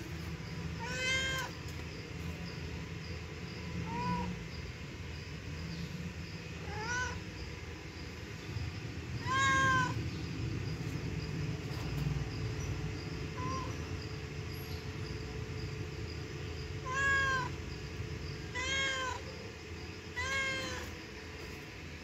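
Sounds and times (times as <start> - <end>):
cat meowing: 0.8 - 1.6, 3.8 - 4.4, 6.6 - 7.2, 9.2 - 10.0, 13.4 - 13.7, 16.8 - 17.5, 18.5 - 19.2, 20.2 - 20.9.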